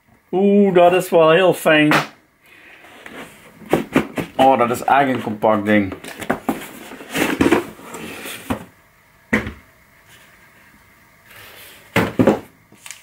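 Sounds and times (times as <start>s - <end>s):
cardboard scraping and rustling: 2.9s - 8.7s.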